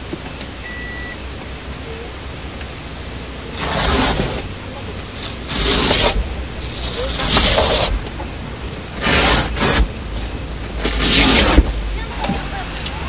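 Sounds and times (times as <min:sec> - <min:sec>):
zippers being pulled open: 0:05.2 - 0:07.9.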